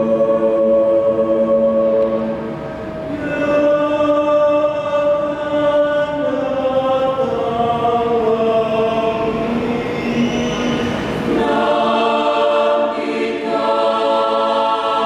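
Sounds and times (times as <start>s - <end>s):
mixed choir singing: 0.0s - 15.0s.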